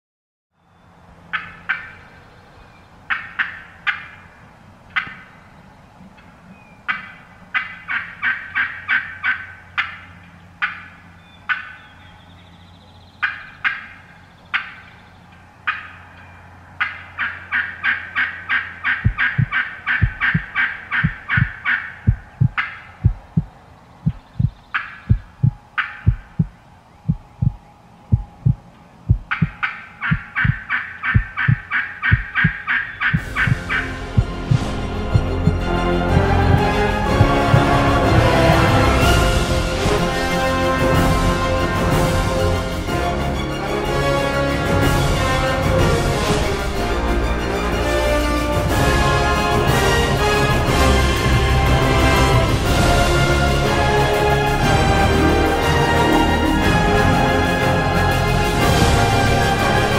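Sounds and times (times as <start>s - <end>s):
wild turkeys gobbling: 1.3s - 12.3s, 13.2s - 40.5s
low steady thumping beat: 19.0s - 42.6s.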